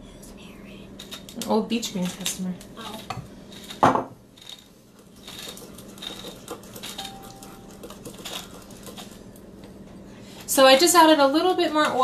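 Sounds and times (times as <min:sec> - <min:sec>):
utensils clicking and clinking: 0:01.0 - 0:09.2.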